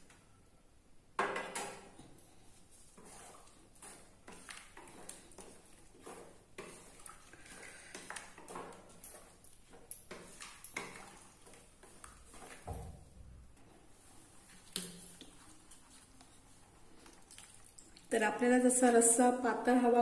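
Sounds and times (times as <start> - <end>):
wooden spatula stirring curry: 1.2 - 18.0
spatula knocking and scraping pan: 2.9 - 13.2.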